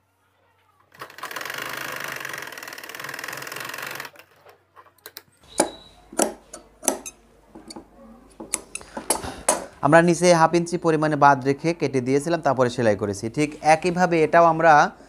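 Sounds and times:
sewing machine stitching: 1.0s - 4.3s.

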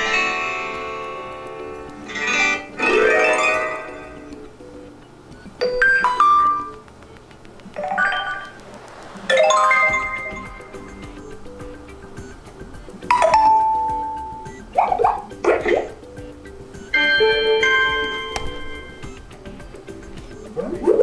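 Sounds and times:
faint background music: 0.0s - 21.0s
phone ringtone chimes: 5.5s - 6.8s, 7.8s - 8.7s, 9.3s - 12.4s, 13.0s - 14.7s, 16.8s - 19.4s.

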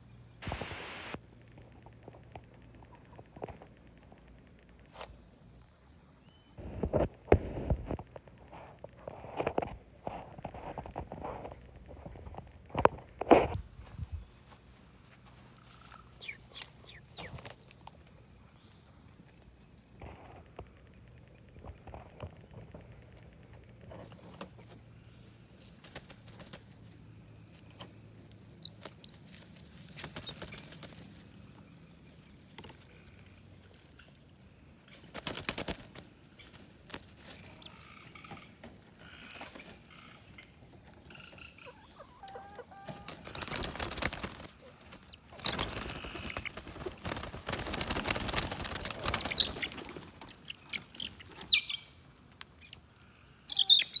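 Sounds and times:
chickens clucking: 0.4s - 4.4s, 15.3s - 18.0s, 25.9s - 32.1s, 34.9s - 54.0s
chick chirping: 15.6s - 17.5s, 28.6s - 29.3s, 39.4s - 44.1s, 44.7s - 47.2s, 48.8s - 52.0s, 52.6s - 52.8s, 53.5s - 54.0s.

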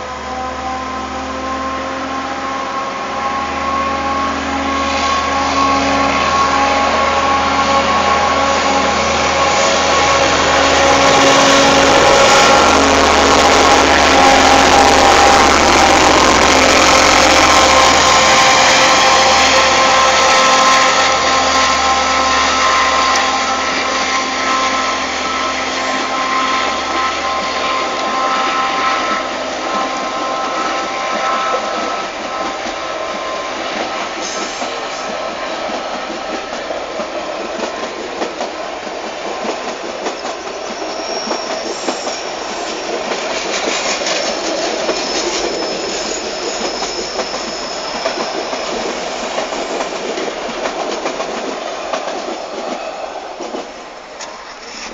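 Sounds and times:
locomotive engine drone: 0.0s - 37.8s
train cars rumbling past: 0.0s - 54.9s.

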